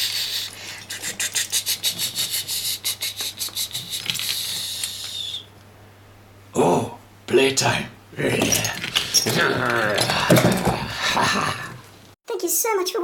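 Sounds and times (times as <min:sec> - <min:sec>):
steam hiss: 0:00.0 - 0:05.4.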